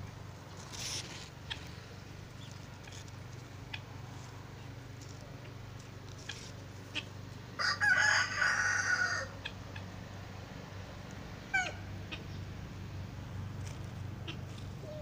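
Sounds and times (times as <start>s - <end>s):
fowl crowing: 7.6s - 9.9s, 11.5s - 11.8s.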